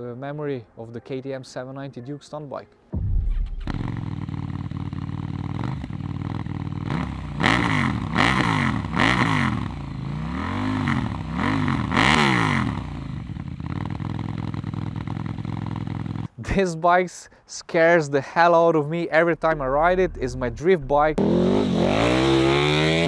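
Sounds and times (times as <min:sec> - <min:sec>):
motorcycle engine idling and revving: 0:03.3 - 0:16.4, 0:21.2 - 0:23.0.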